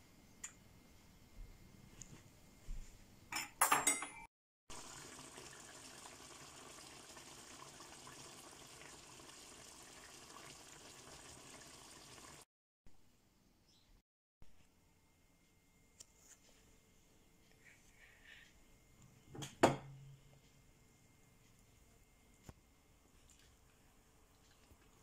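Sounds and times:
sauce bubbling in a pan: 4.7 - 12.5.

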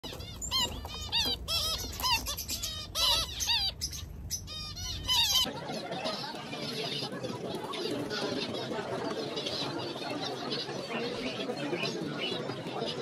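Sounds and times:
finches calling: 0.0 - 5.5.

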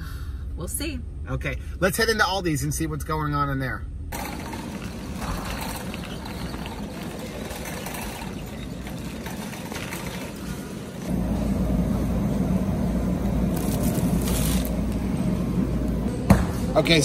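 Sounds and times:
shopping cart wheels rattling: 4.2 - 11.3, 13.5 - 15.0.

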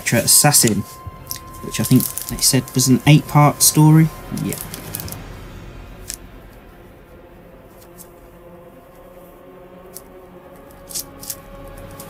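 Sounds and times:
book pages turning: 0.0 - 5.2, 9.9 - 12.0.

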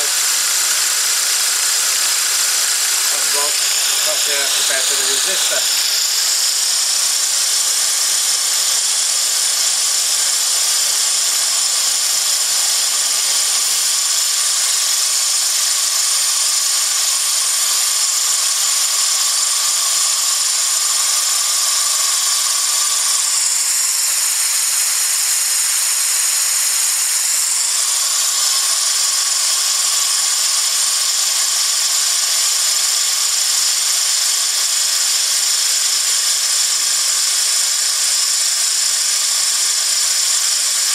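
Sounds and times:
compressed air hissing: 0.0 - 6.6
small motor whirring: 0.0 - 40.9.

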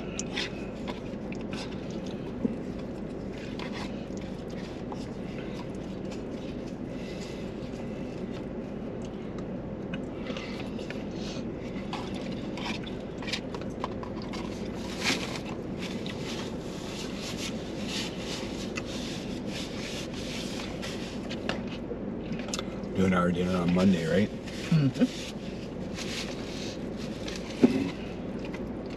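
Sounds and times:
chewing: 0.0 - 19.8
car engine hum: 0.0 - 28.9.

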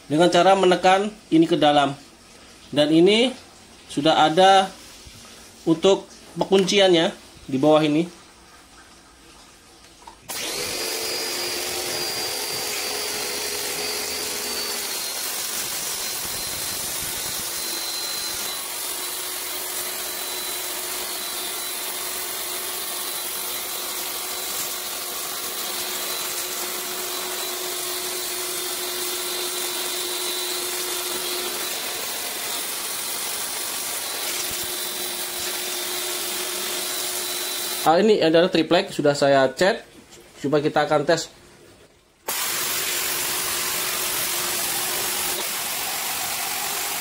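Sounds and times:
pressure washer whining: 10.3 - 37.9, 42.3 - 47.0
water jet hissing on tiles: 12.0 - 21.0.

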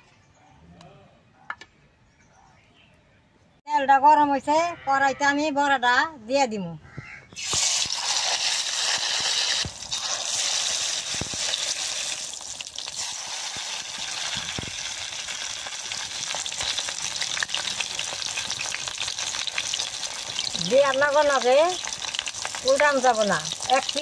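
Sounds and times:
fritters deep-frying in oil: 7.4 - 24.0.

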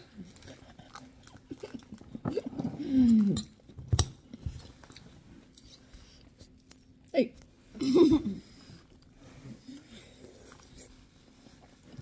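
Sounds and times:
person chewing: 0.0 - 7.1.

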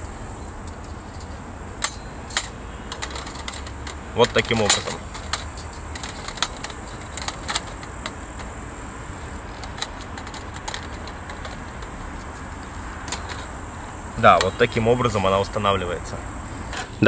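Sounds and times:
metallic clicks of folding grill: 0.6 - 8.6, 9.5 - 12.3.

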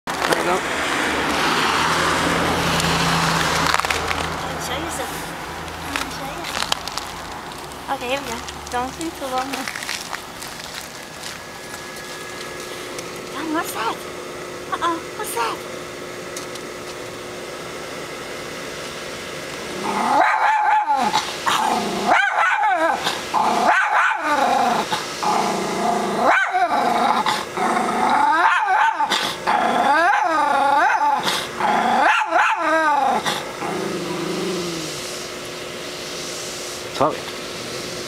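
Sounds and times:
steady low hum: 0.1 - 38.0
dog growling and barking: 19.6 - 35.0.

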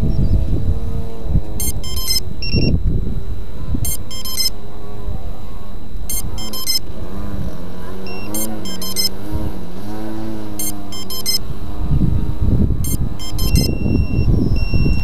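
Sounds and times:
electronic chime music: 1.6 - 2.8, 3.8 - 4.6, 6.1 - 6.9, 8.0 - 9.2, 10.6 - 11.5, 12.8 - 15.0.

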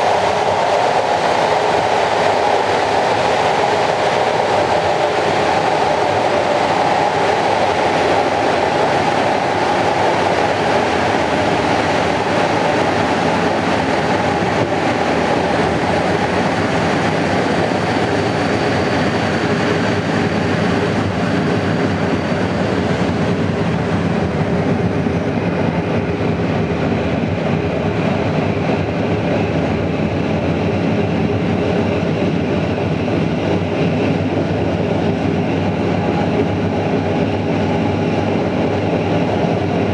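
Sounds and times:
train wheels rumbling on rail: 0.0 - 39.9.

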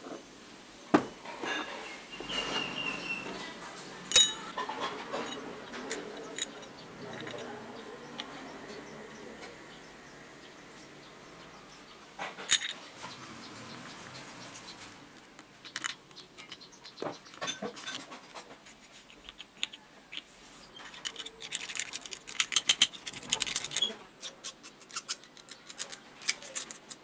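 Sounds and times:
metal parts clicking: 4.1 - 7.5, 12.5 - 12.8, 15.6 - 18.0, 20.8 - 27.0.

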